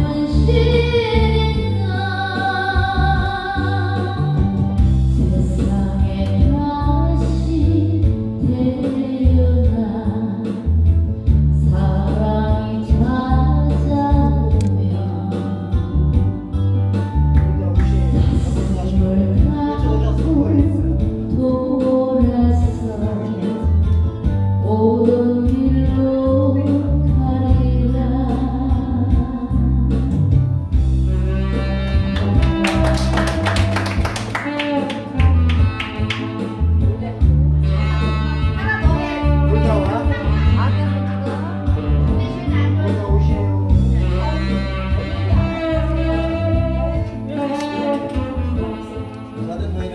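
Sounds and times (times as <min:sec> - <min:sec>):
backing music with bass: 0:00.0 - 0:49.9.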